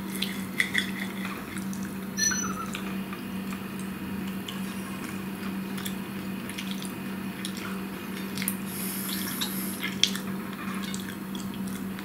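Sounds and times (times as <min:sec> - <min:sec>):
steady low hum: 0:00.2 - 0:10.6
person chewing wetly: 0:04.2 - 0:12.0.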